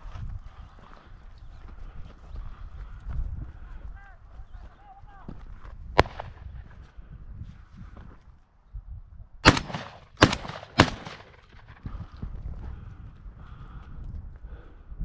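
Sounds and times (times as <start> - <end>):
shotgun shots: 6.0 - 6.6, 9.4 - 11.8.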